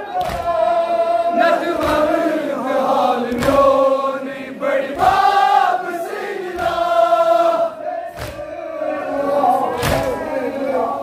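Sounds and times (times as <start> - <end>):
crowd of men chanting: 0.0 - 11.0
chest-beating slaps: 0.2 - 0.6, 3.3 - 3.8, 6.5 - 7.0, 8.1 - 8.4, 9.8 - 10.2.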